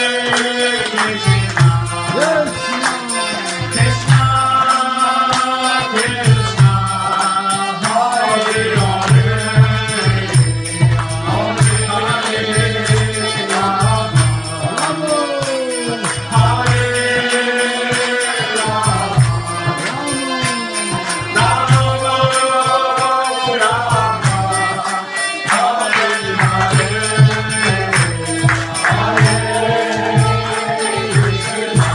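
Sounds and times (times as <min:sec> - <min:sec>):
voices chanting a melody: 0:00.0 - 0:31.9
hand drum beat: 0:25.5 - 0:31.9.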